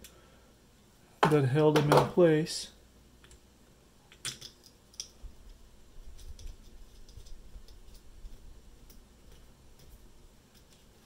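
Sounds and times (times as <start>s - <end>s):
small parts clicking and tapping: 4.1s - 8.1s.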